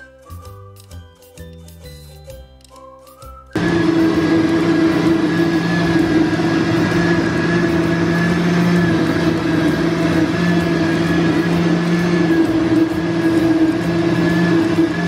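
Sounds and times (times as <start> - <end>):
blender motor whine: 3.6 - 15.0.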